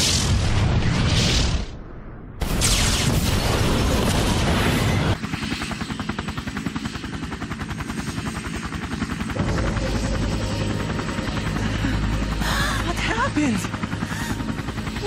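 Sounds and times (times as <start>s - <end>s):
jet aircraft flying overhead: 9.3s - 15.0s.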